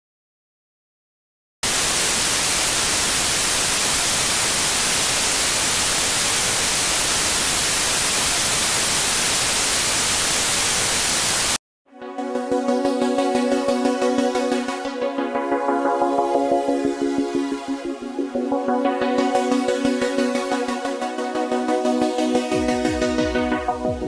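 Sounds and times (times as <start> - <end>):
television static hiss: 1.7 - 11.6
electronic synthesizer music: 11.9 - 24.0.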